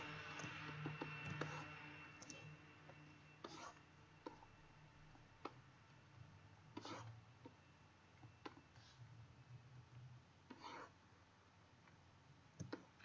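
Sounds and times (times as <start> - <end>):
computer mouse clicks: 12.6 - 13.0.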